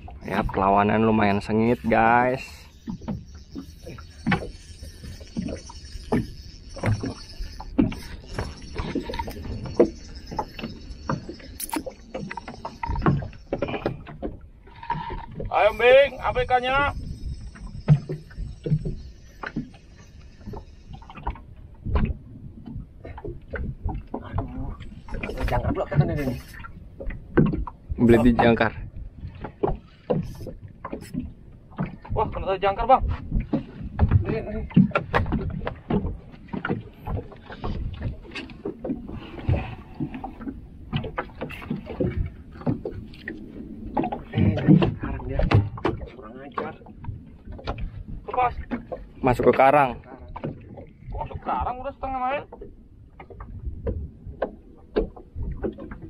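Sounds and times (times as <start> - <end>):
water against hull: 0.0 - 56.0
boat knocking and bumping: 20.4 - 56.0.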